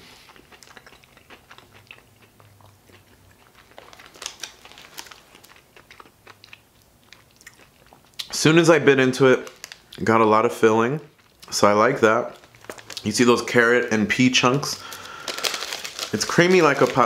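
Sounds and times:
person chewing crunchy food: 0.0s - 8.3s, 12.3s - 13.1s, 14.8s - 17.0s.

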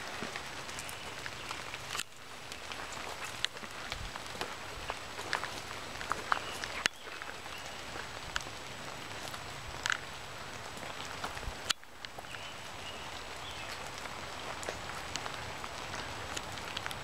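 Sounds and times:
rain pattering on leaves: 0.0s - 17.0s.

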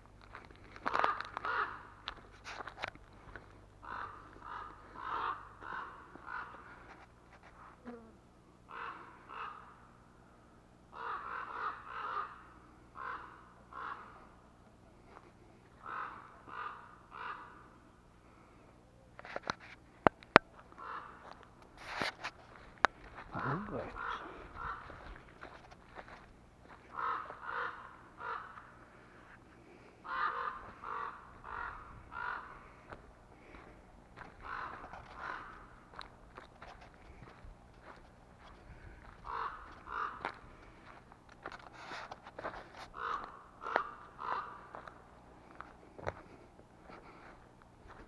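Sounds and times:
crows cawing: 0.7s - 2.2s, 3.2s - 7.0s, 8.7s - 10.0s, 10.9s - 14.4s, 15.1s - 18.5s, 20.7s - 21.5s, 22.5s - 41.6s, 42.8s - 46.2s.

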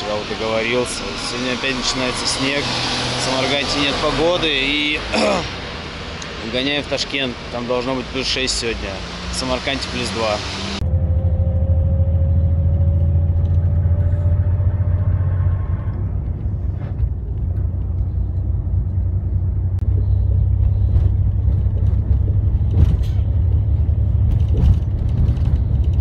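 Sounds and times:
engine whine: 0.0s - 26.0s
vehicle rumble from on board: 0.0s - 26.0s
knocks and rattles: 20.4s - 26.0s.

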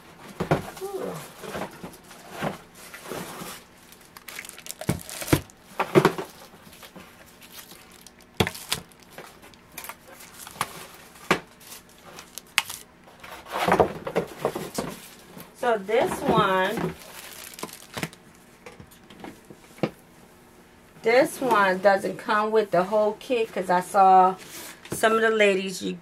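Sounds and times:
plastic wrapping crinkling: 1.4s - 12.9s, 16.4s - 18.4s.

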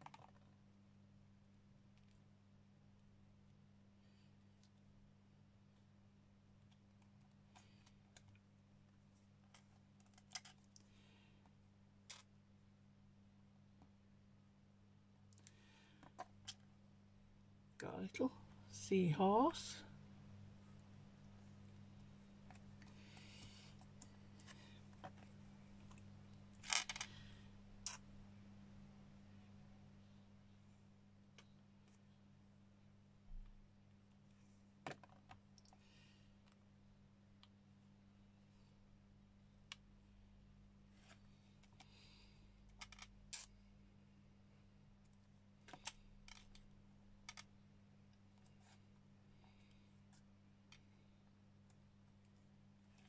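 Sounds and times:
steady low hum: 0.0s - 34.8s.

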